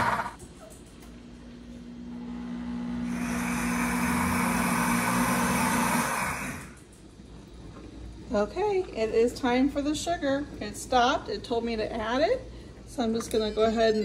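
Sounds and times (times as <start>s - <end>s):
blender motor humming: 0.0s - 0.4s, 2.0s - 6.8s
blender whirring: 0.0s - 0.4s, 2.0s - 6.8s.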